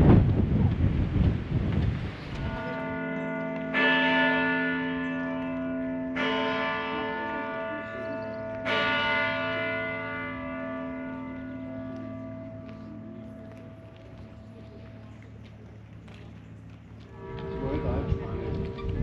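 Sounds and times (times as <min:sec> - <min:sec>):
church bell striking: 0:02.4 - 0:15.0, 0:17.1 - 0:19.0.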